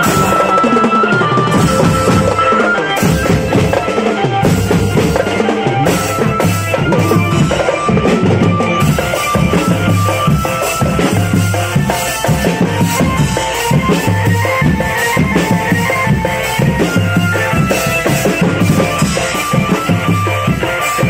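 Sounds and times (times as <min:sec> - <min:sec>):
held melody line: 0:00.0 - 0:21.0
marching bass drums: 0:00.0 - 0:21.0
snare drums beating: 0:00.0 - 0:21.0.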